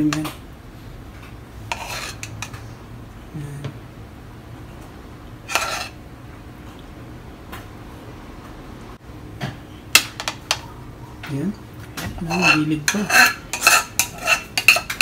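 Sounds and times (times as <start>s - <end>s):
spoon scraping a saucepan: 1.7s - 2.7s, 5.5s - 6.0s, 12.2s - 15.0s.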